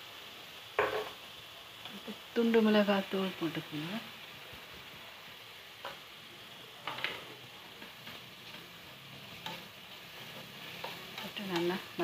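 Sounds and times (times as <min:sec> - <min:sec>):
food sizzling in hot oil: 0:00.0 - 0:12.0
spatula scraping a pan: 0:06.8 - 0:12.0.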